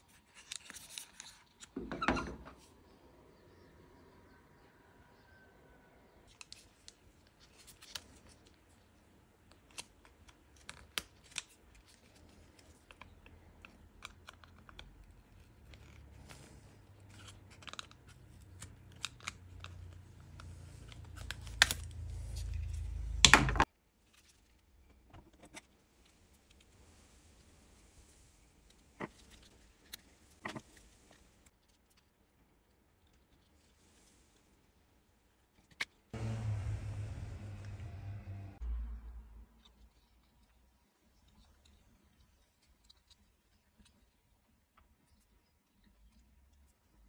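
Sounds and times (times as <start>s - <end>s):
low rumble: 36.2s - 39.6s.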